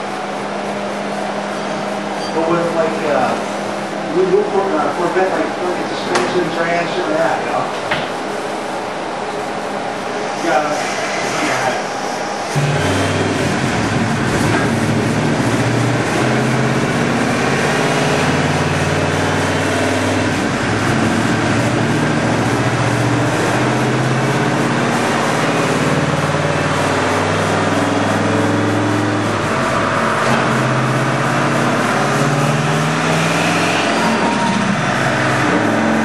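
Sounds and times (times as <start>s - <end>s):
car engine running: 9.3s - 36.0s.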